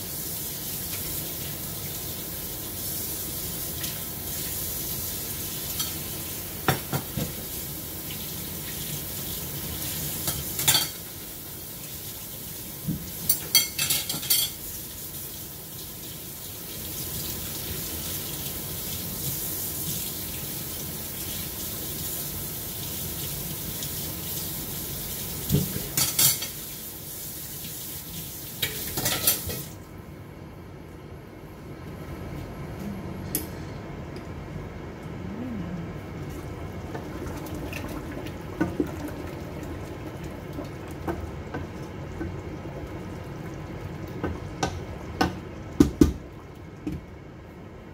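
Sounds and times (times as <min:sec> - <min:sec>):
water running from tap: 0:00.0 - 0:29.8, 0:36.4 - 0:45.9
dishes clinking and clattering: 0:10.2 - 0:11.0, 0:13.2 - 0:14.6, 0:25.5 - 0:26.6, 0:28.6 - 0:29.7.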